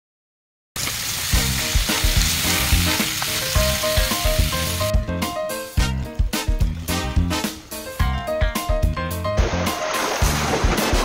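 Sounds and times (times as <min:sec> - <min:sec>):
meat sizzling in a pan: 0:00.8 - 0:04.9
background music with steady beat: 0:01.4 - 0:11.0.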